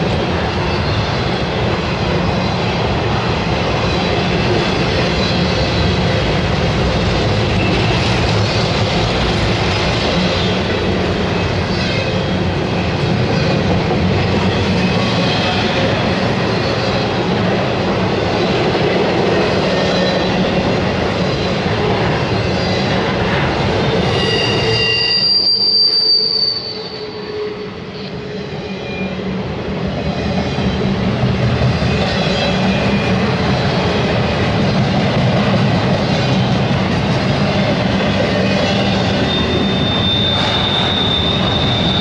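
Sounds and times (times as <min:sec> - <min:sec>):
train wheels rumbling on rails: 0:00.0 - 0:42.0
high wheel squeal: 0:23.9 - 0:29.1, 0:38.3 - 0:42.0.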